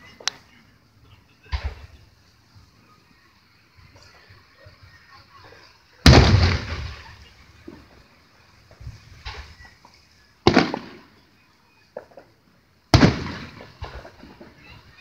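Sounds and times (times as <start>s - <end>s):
small firework pops: 0.1s - 0.5s, 6.1s - 15.0s
firework booms echoing: 6.0s - 7.8s, 10.4s - 11.2s, 12.9s - 14.6s.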